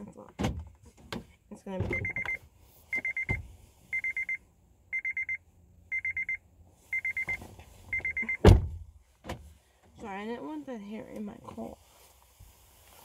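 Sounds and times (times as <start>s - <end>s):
car warning chime beeping: 1.9s - 8.5s.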